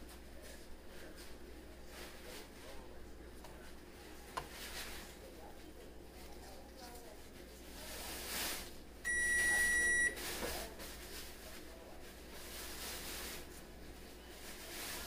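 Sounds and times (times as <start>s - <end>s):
electronic beep: 9.1s - 10.1s.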